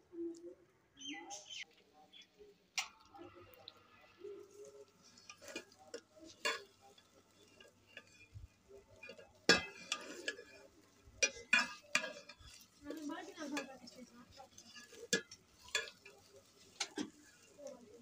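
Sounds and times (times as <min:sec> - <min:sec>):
ladle stirring and scraping pot: 0:01.3 - 0:18.0
ladle clanking against pot: 0:05.2 - 0:13.0, 0:14.3 - 0:17.6.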